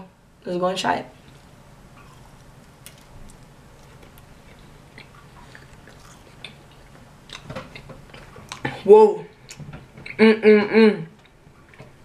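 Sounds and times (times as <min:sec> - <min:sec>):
low room hum: 0:00.0 - 0:12.0
person chewing crunchy snack: 0:01.3 - 0:08.8.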